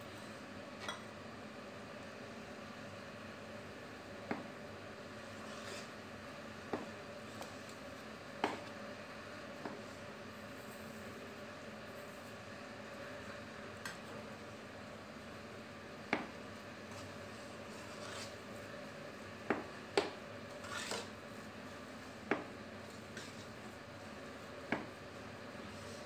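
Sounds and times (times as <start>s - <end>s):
low background hum: 0.0s - 26.0s
spoon stirring thick mixture: 5.2s - 6.0s, 16.8s - 18.4s.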